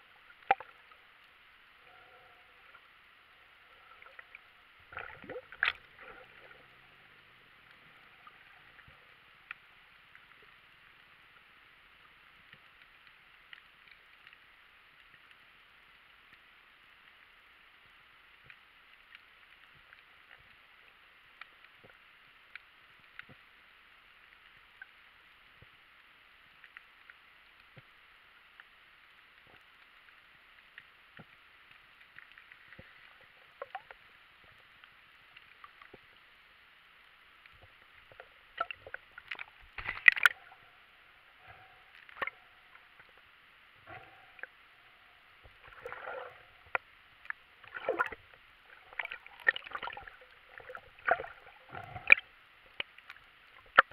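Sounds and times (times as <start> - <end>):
water sloshing and gurgling: 0.0 - 11.4, 37.4 - 53.9
muffled underwater hiss: 0.0 - 53.9
faint clicks: 7.6 - 36.3, 41.4 - 53.9.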